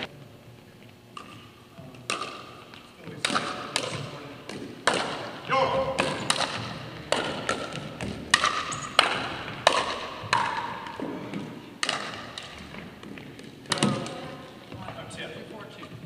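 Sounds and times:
ball bouncing on wooden floor: 5.9 - 15.0
paddles striking plastic ball: 11.8 - 14.2.

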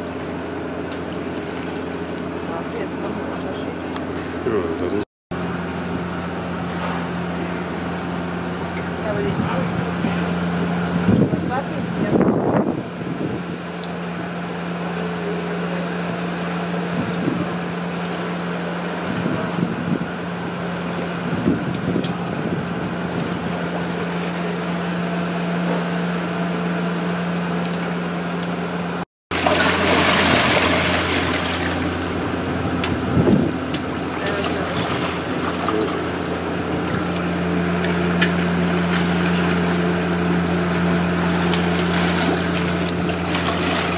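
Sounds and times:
low motor hum: 0.0 - 43.9
water sloshing and splashing: 29.3 - 43.9.

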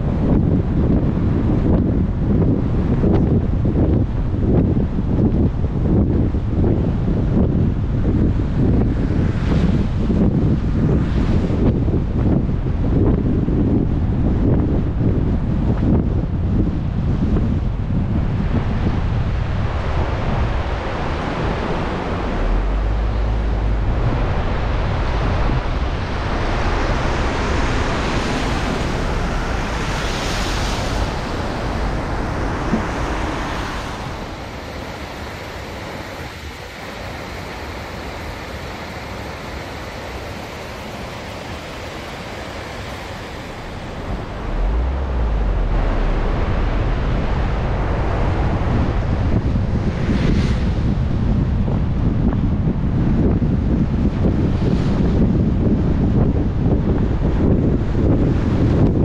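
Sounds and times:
car driving on wet road: 18.5 - 51.4
heavy rain: 19.9 - 50.1.

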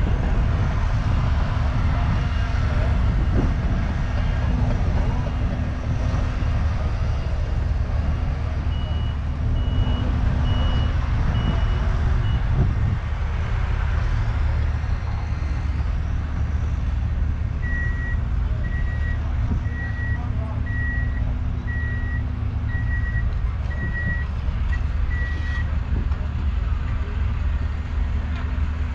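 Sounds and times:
low engine rumble: 0.0 - 28.9
vehicle reversing alarms beeping: 8.6 - 12.6, 17.6 - 25.7.

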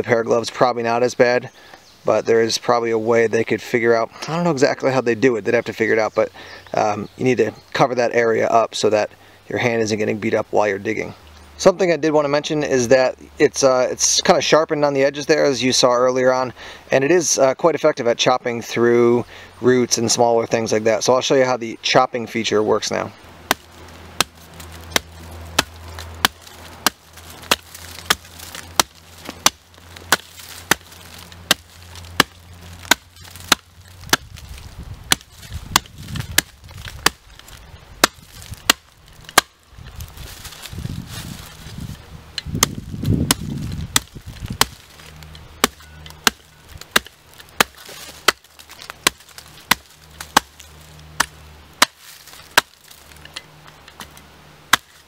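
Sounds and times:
shovel blade chopping log: 23.5 - 41.8, 42.4 - 55.0.

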